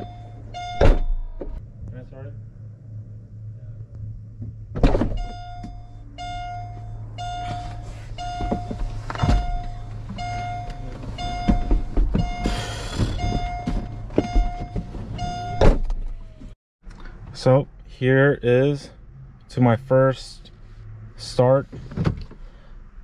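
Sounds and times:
car warning chime beeping: 0.0 - 1.2, 5.1 - 15.7
low hum: 0.0 - 11.8
thuds: 4.4 - 5.8.

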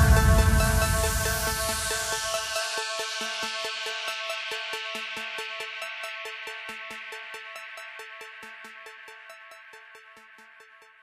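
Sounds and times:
electronic music with fast beat: 0.0 - 11.0.

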